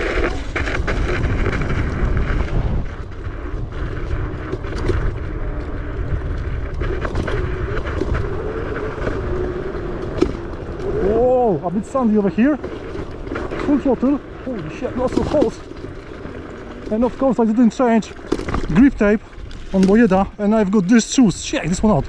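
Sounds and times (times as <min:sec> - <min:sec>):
tyres rumbling on dirt: 0:00.0 - 0:22.0
wind buffeting microphone: 0:00.0 - 0:22.0
knocks and rattles from bumps: 0:11.9 - 0:20.4.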